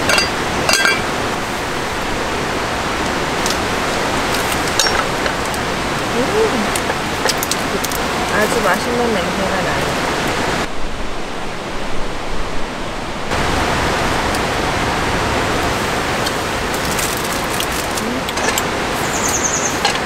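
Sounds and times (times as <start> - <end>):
camp utensils clicking: 0.0 - 1.1, 3.0 - 8.1, 16.2 - 20.0
stream rushing water: 0.0 - 20.0.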